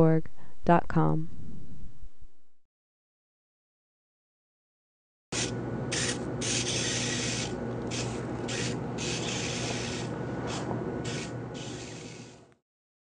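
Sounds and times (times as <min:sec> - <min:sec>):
steady low hum: 0:05.4 - 0:12.6.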